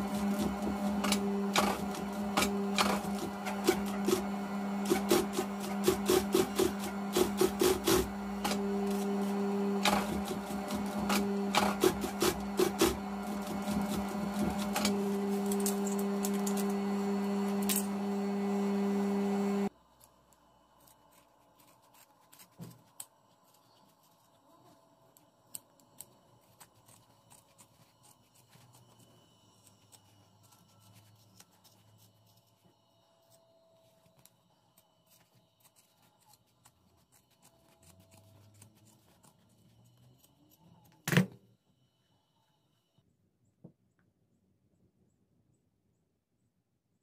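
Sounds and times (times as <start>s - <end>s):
sewing machine motor humming: 0.0s - 19.7s.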